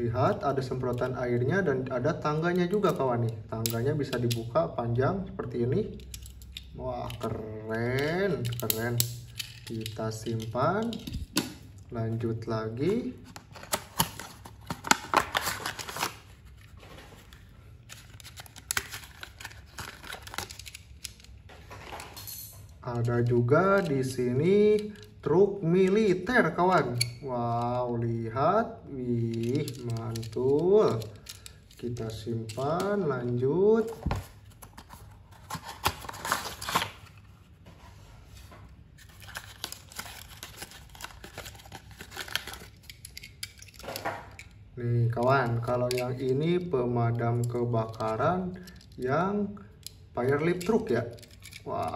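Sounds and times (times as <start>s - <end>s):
paper packaging rustling: 12.8s - 22.0s, 33.7s - 44.2s.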